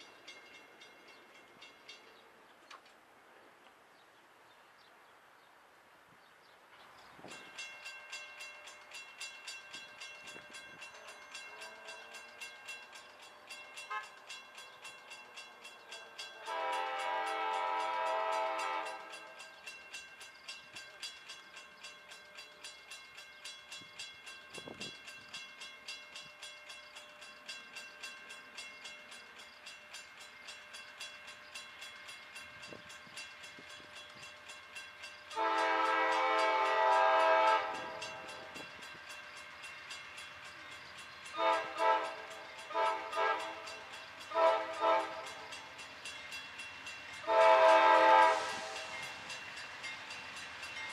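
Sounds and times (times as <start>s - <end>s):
locomotive horn blasts: 13.9s - 14.2s, 16.4s - 19.1s, 35.4s - 38.5s, 41.4s - 45.4s, 47.2s - 48.8s.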